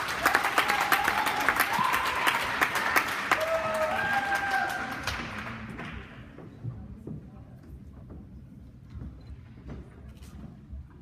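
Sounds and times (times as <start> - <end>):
spectators clapping and cheering: 0.0 - 6.4.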